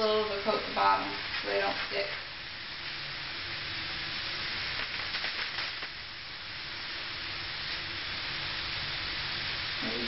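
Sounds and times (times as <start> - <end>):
burger patties sizzling in oil: 0.0 - 10.0.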